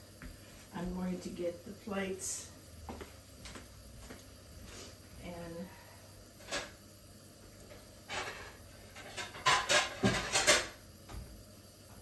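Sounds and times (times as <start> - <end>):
plates scraping: 6.4 - 6.8, 8.0 - 10.8
plates clattering: 8.1 - 10.8.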